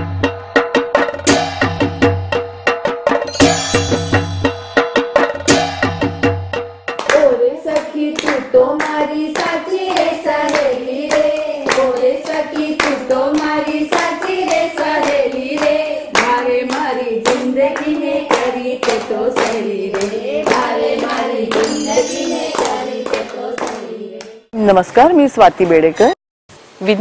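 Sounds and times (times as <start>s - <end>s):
rhythmic hand clapping: 6.9s - 24.4s
group singing: 7.1s - 24.5s.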